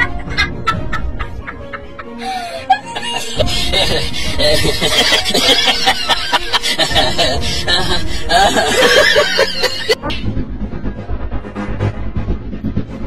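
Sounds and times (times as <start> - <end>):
people laughing and snickering: 0.0 - 10.3
music with deep beat: 3.4 - 13.0.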